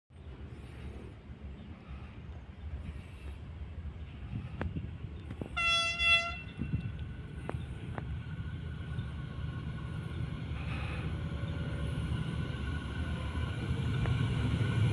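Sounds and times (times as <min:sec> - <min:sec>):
low rumble of train: 0:00.1 - 0:14.9
locomotive horn blast: 0:05.5 - 0:06.8.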